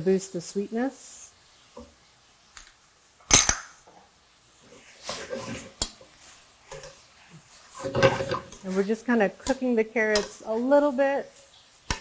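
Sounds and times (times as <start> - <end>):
metal tongs clanking in a pan: 5.1 - 7.1, 7.7 - 11.0.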